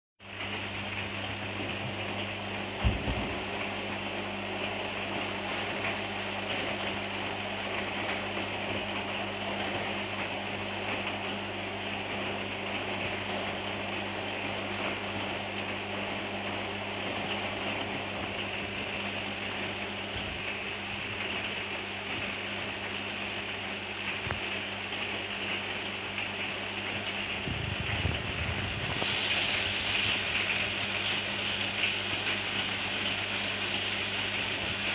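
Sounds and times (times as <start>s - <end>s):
electric pump humming: 0.2s - 34.9s
rushing water: 28.7s - 34.9s.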